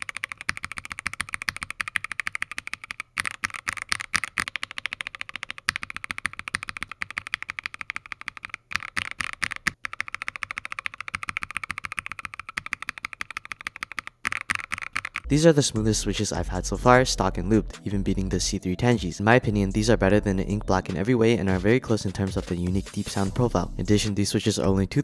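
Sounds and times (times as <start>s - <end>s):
mechanical keyboard typing: 0.0s - 15.3s.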